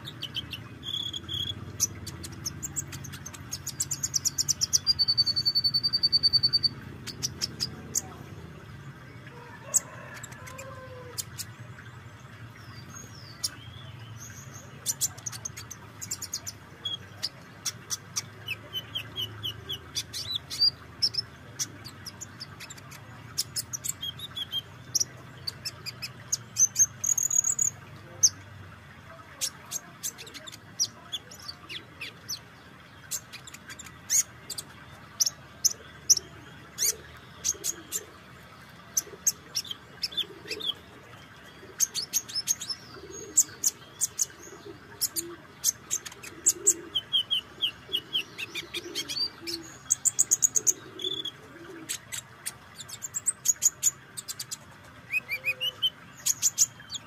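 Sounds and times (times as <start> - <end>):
bird ticking calls: 0.0 - 8.7, 29.3 - 57.0
bird twittering chirps and trills: 0.0 - 57.0.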